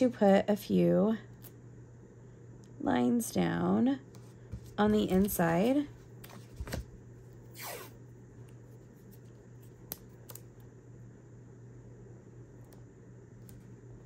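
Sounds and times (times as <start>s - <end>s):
low steady hum: 0.0s - 14.0s
tape tearing: 7.5s - 8.0s.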